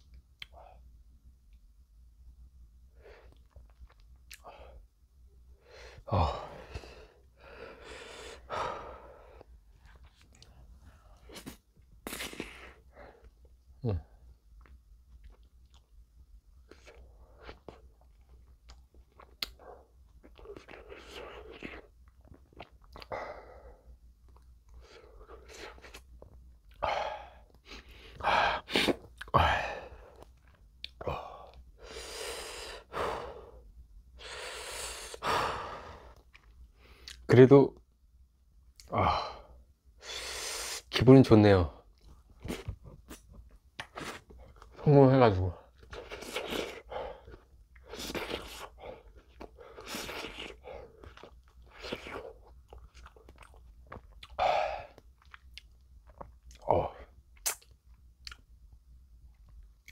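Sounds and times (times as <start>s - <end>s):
man panting and gasping: 5.6s - 9.4s, 26.8s - 30.2s, 34.2s - 36.2s
mouth clicks: 57.4s - 58.4s.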